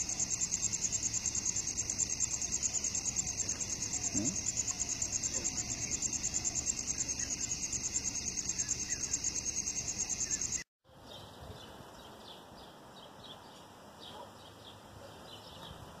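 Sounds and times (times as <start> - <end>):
crickets chirping: 0.0 - 10.6.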